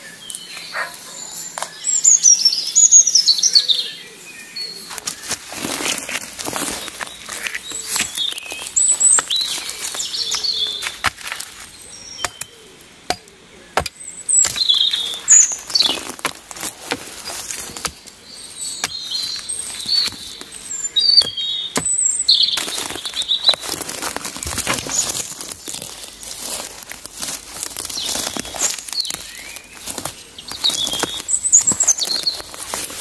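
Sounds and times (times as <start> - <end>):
small birds chirping: 0.0 - 33.0
rustling: 4.8 - 33.0
hatchet striking branch: 12.2 - 18.1, 18.7 - 22.8.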